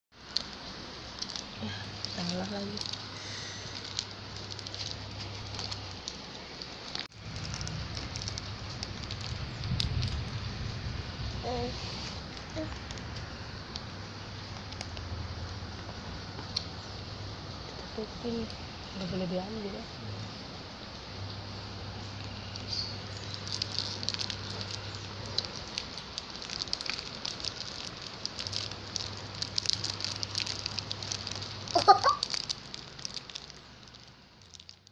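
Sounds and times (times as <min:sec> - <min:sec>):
plastic bag crinkling: 0:00.2 - 0:15.1, 0:22.5 - 0:34.9
low handling rumble: 0:00.7 - 0:31.7
child squealing: 0:31.7 - 0:32.4.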